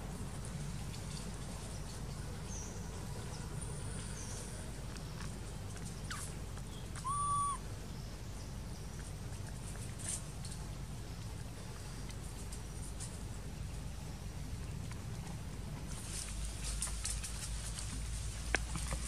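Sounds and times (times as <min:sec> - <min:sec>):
high bird chirps: 0:06.1 - 0:07.6
whistled bird note: 0:07.0 - 0:07.6.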